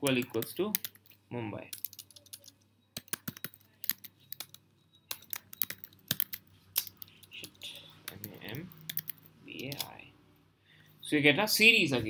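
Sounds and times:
typing on a keyboard: 0.0 - 1.1, 1.7 - 9.9.

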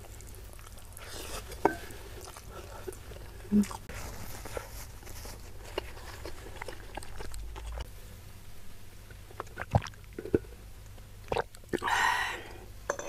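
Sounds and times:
person swallowing gulps: 9.3 - 10.5, 11.2 - 12.0.

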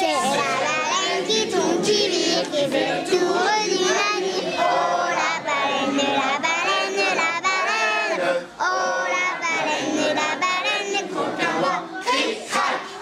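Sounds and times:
children singing: 0.0 - 13.0.

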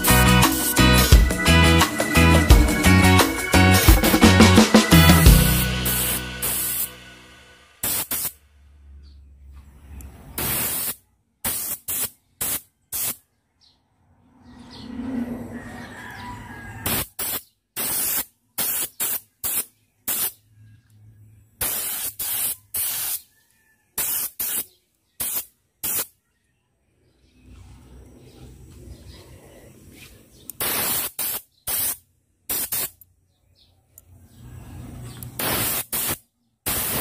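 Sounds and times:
spray paint hissing: 0.0 - 7.1, 7.8 - 8.4, 10.4 - 13.2, 16.8 - 20.4, 21.6 - 23.3, 24.0 - 26.1, 30.5 - 33.0, 35.2 - 37.0.

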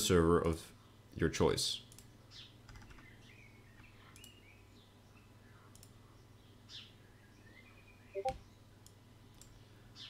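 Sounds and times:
computer mouse clicking: 5.7 - 6.0
faint high chirps: 7.6 - 8.5.

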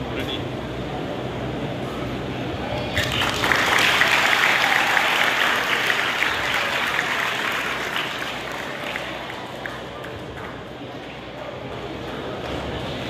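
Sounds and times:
audience applauding: 3.0 - 10.8.

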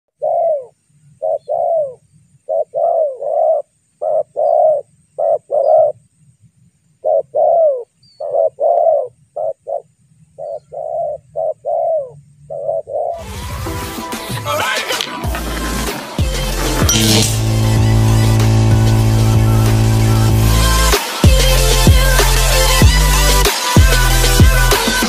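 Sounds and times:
doves cooing: 0.1 - 6.0, 7.0 - 13.2.

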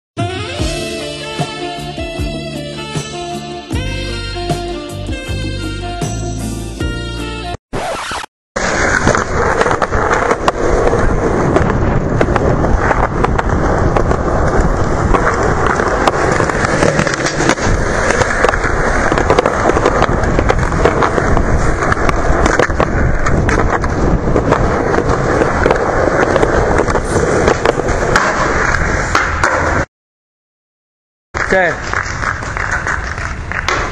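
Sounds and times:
skateboard wheels rolling on concrete: 7.8 - 29.9, 31.4 - 33.9.

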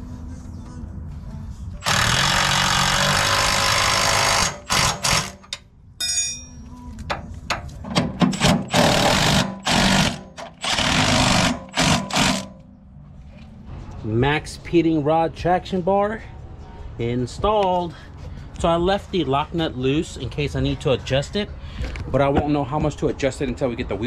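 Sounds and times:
impact wrench hammering: 1.8 - 12.6.

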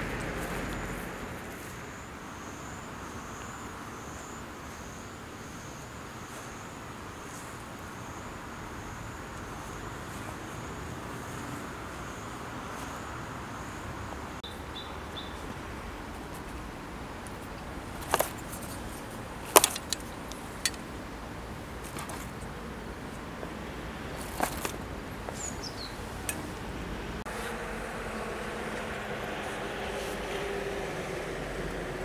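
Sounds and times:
outdoor background noise: 0.0 - 32.0
hard objects clicking and knocking: 17.9 - 20.9, 24.2 - 24.9.

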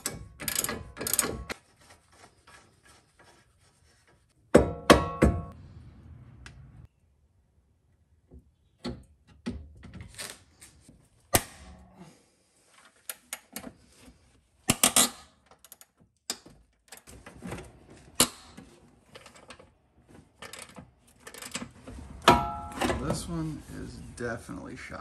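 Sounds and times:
sharp metallic knocks: 4.5 - 5.6.

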